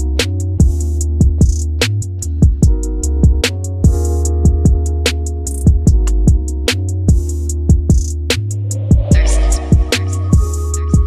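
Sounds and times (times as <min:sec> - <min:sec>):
bass and guitar: 0:00.0 - 0:11.0
drums and hi-hats: 0:00.0 - 0:11.0.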